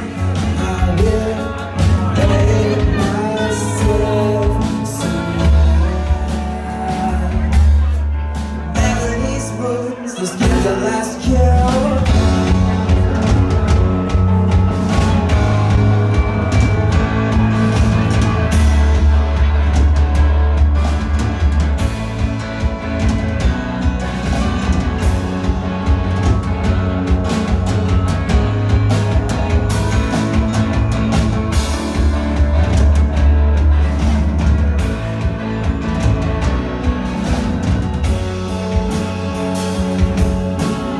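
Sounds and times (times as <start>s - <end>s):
person singing: 0.0s - 16.2s
heavy bass: 0.0s - 40.9s
live rock band playing: 0.0s - 40.9s.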